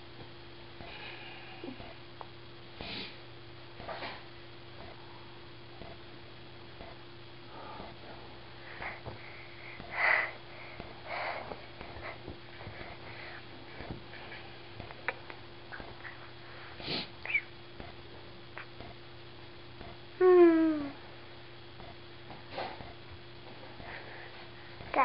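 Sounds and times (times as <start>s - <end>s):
man breathing hard through nose: 7.5s - 14.8s.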